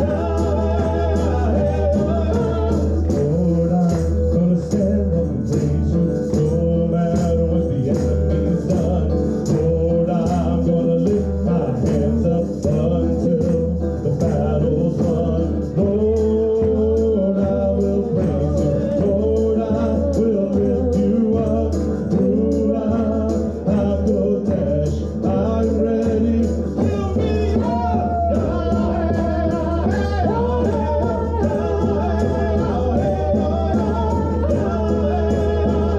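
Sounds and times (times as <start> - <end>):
frame drum beat: 0.0 - 35.9
guitar accompaniment: 0.0 - 35.9.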